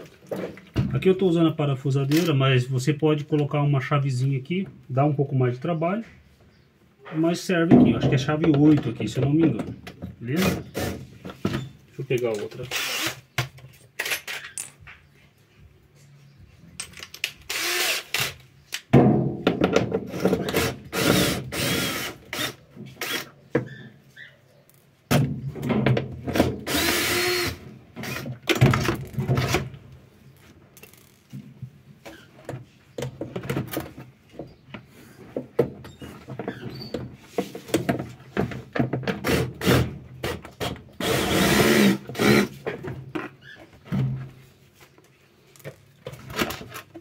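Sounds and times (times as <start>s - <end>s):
cordless drill running: 12.7s - 13.2s, 17.5s - 18.4s, 20.9s - 23.3s, 26.7s - 28.2s, 41.0s - 42.5s.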